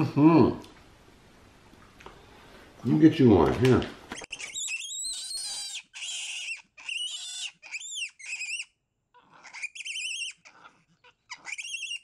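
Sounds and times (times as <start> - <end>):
monkey warbling calls: 4.1 - 12.0.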